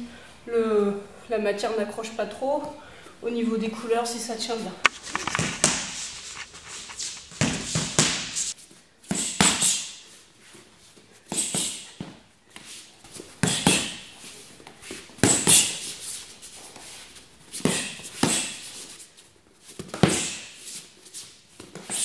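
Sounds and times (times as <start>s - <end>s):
boxing gloves striking focus mitts: 4.8s - 8.4s.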